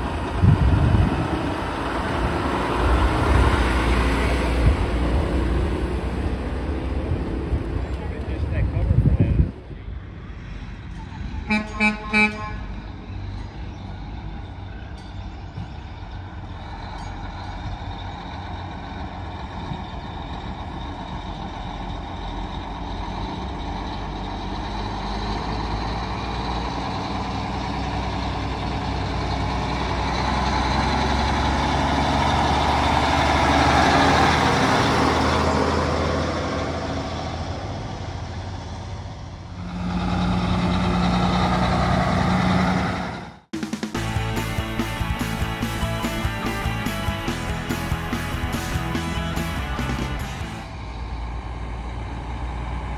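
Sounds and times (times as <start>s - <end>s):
diesel truck engines rumbling: 0.0s - 52.9s
truck horn blast: 11.3s - 12.9s.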